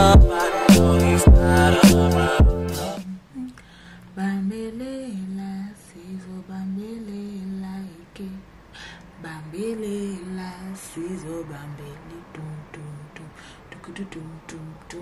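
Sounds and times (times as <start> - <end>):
background music: 0.0 - 3.0
woman humming softly: 3.0 - 3.7.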